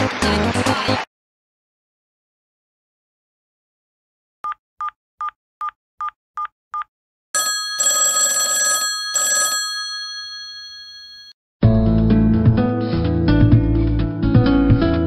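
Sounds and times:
telephone bell ringing: 0:07.4 - 0:11.4.

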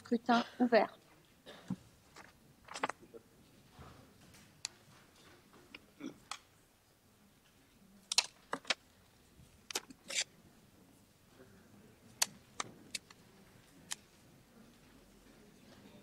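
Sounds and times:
paper rustling: 0:02.1 - 0:03.0
pen clicks: 0:08.1 - 0:08.8, 0:09.6 - 0:10.3, 0:12.2 - 0:13.2.

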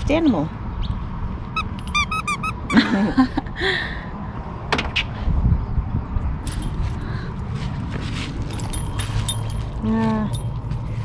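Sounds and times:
metal tag and clip jingling: 0:01.6 - 0:02.4, 0:06.4 - 0:07.0, 0:08.4 - 0:10.8.

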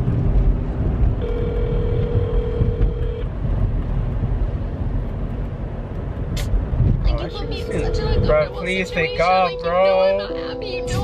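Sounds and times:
car cabin rumble: 0:00.0 - 0:11.0
phone ringback tone: 0:01.2 - 0:03.2, 0:07.5 - 0:11.0.

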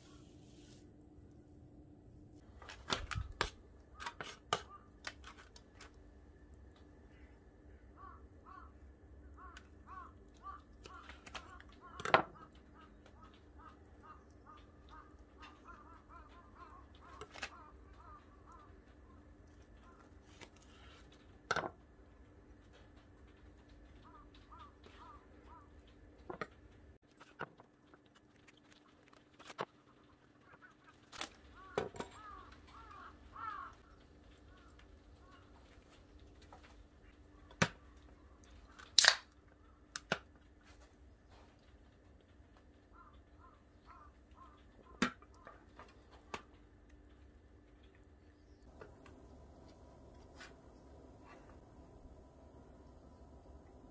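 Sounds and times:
birds calling: 0:07.1 - 0:21.0, 0:23.3 - 0:26.8, 0:29.8 - 0:38.9, 0:41.3 - 0:46.3.

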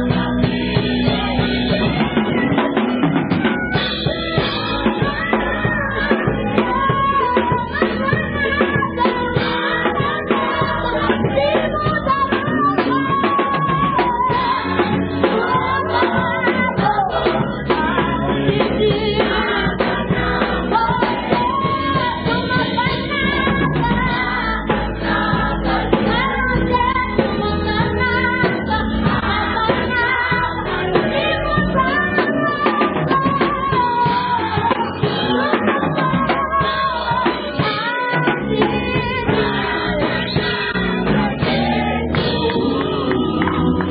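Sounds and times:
choir singing: 0:00.0 - 0:02.8, 0:13.5 - 0:32.1, 0:35.0 - 0:43.9
drum kit: 0:00.0 - 0:43.9
keyboard: 0:00.0 - 0:43.9.

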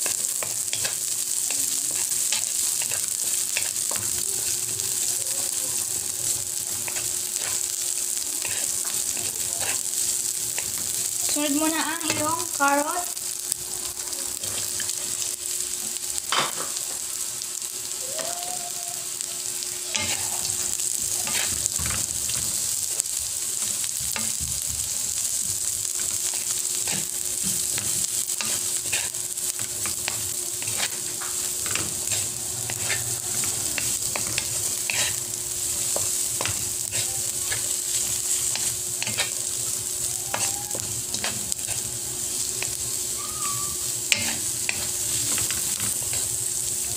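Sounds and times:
utensil clicking and scraping pan: 0:00.0 - 0:01.0, 0:06.8 - 0:07.6, 0:08.4 - 0:09.9, 0:26.0 - 0:35.2, 0:35.8 - 0:39.5, 0:40.3 - 0:41.9, 0:44.1 - 0:46.3
vegetables sizzling in oil: 0:00.0 - 0:46.9.

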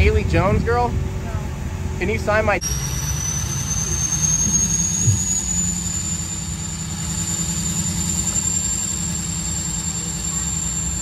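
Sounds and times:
diesel engine rumbling: 0:00.0 - 0:11.0
high rising whistle: 0:02.6 - 0:11.0.

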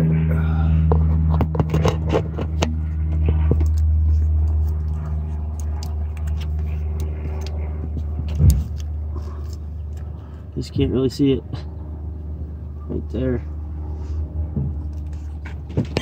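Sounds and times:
low mechanical hum: 0:00.0 - 0:16.0
clicks and scrapes: 0:01.1 - 0:07.6.

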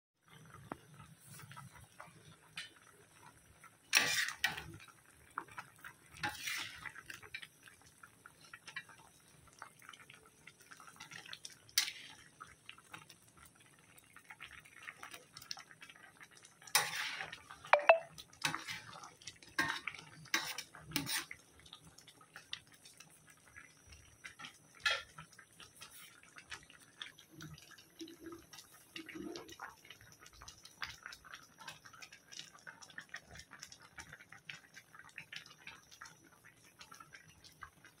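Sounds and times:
thick curry bubbling in pan: 0:00.2 - 0:38.0.

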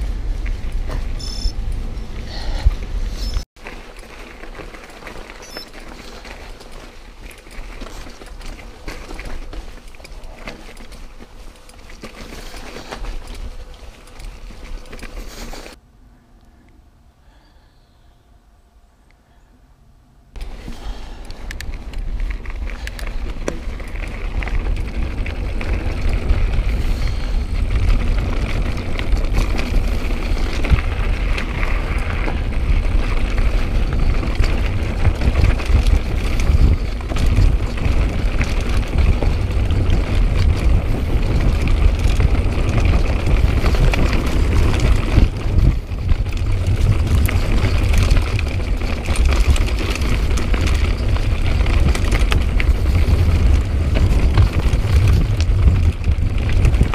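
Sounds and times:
wind buffeting microphone: 0:00.0 - 0:03.5, 0:20.3 - 0:56.9
bike rattling over stones: 0:00.0 - 0:15.8, 0:20.4 - 0:56.9
tyres crunching on gravel: 0:03.4 - 0:15.8, 0:20.4 - 0:56.9.

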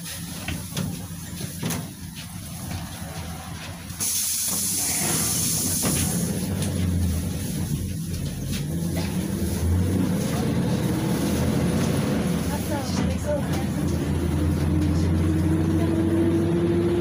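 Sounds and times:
bus engine running: 0:00.0 - 0:17.0
loud hiss of air: 0:04.0 - 0:06.6.

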